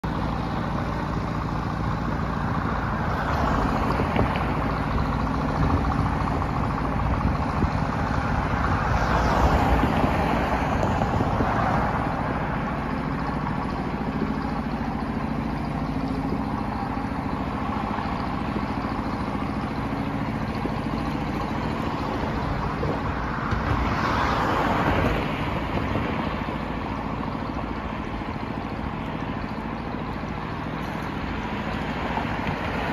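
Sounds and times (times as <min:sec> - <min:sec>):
truck engine idling: 0:00.0 - 0:32.9
vehicle noise: 0:00.0 - 0:32.9.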